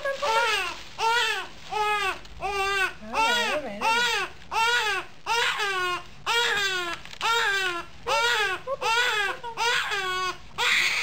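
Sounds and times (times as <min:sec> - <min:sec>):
infant crying: 0:00.3 - 0:11.0.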